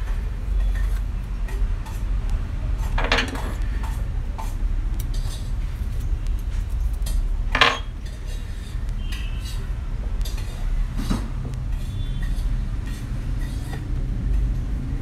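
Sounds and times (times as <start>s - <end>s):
low background rumble: 0.0s - 15.0s.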